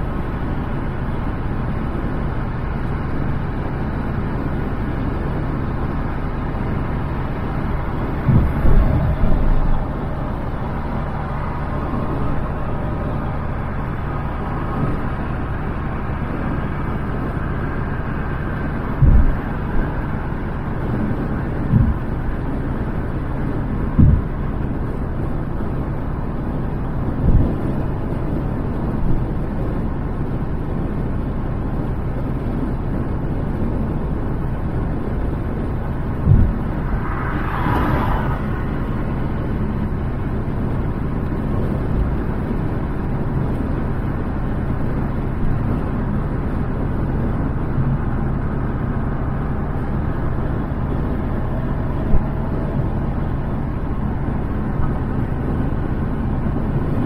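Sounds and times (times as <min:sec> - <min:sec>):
car road and wind noise: 0:00.0 - 0:57.0
short low thumps: 0:08.1 - 0:13.6, 0:18.8 - 0:20.1, 0:21.6 - 0:22.4, 0:23.9 - 0:24.6, 0:36.2 - 0:37.1.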